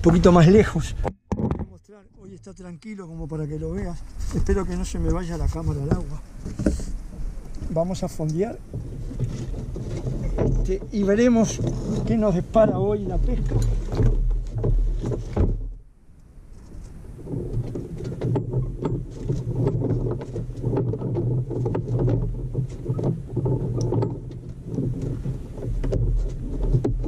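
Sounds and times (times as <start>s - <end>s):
anchor gear knocking and clattering: 0.0s - 1.9s, 7.6s - 15.8s, 17.3s - 27.0s.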